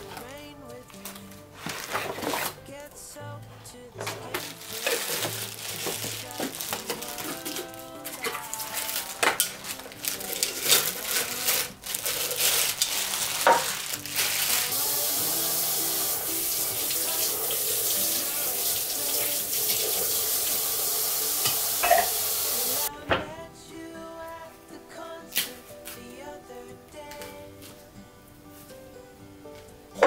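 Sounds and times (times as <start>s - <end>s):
plastic packaging crinkling: 0.1s - 2.6s, 4.0s - 15.4s
kitchen tap running: 14.7s - 22.9s.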